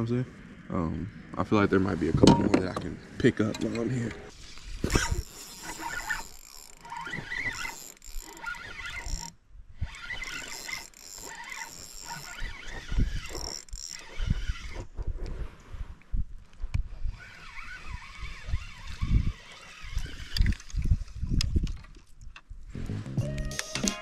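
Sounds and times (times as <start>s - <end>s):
fishing reel whirring and clicking: 4.8s - 14.9s, 17.1s - 20.9s.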